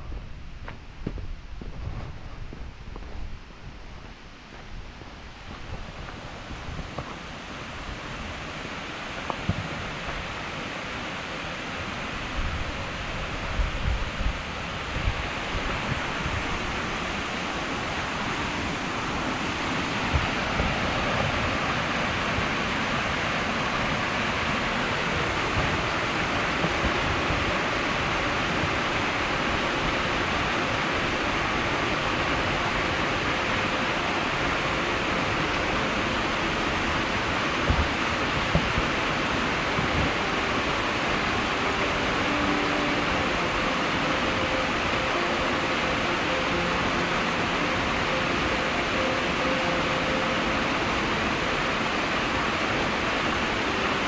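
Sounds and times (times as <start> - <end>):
wind bumps on microphone: 0.0 - 8.6, 12.2 - 23.0, 36.9 - 40.7
waterfall rushing over rocks: 0.0 - 54.0.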